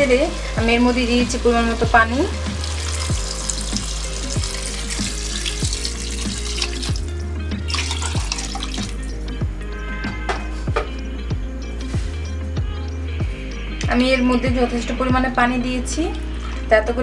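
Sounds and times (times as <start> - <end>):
background music with steady beat: 0.0 - 17.0
water pouring onto vegetables: 2.3 - 9.3.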